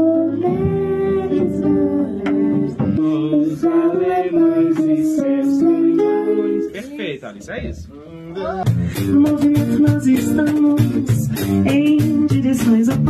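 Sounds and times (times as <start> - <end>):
girl singing long notes: 0.0 - 6.7
guitar: 0.0 - 7.0, 7.7 - 13.0.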